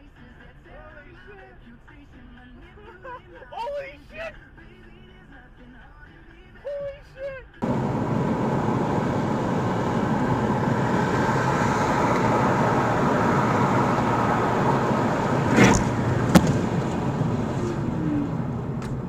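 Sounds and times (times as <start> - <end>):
car road noise from cabin: 7.6 - 19.0
thump: 15.5 - 17.1.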